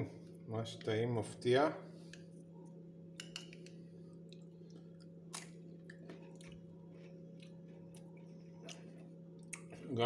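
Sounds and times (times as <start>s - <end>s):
steady low hum: 0.0s - 10.0s
person chewing: 4.1s - 9.9s.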